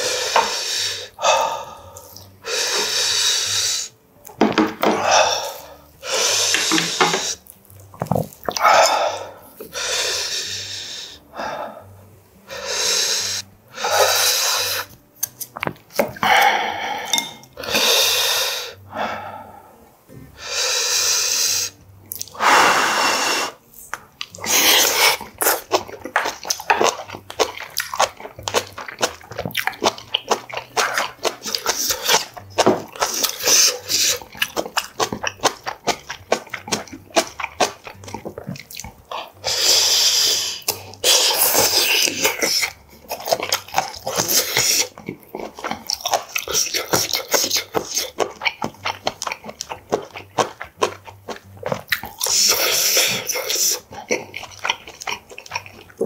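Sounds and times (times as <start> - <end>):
wet chewing and smacking: 4.2 - 9.0, 22.1 - 22.4, 23.6 - 56.0.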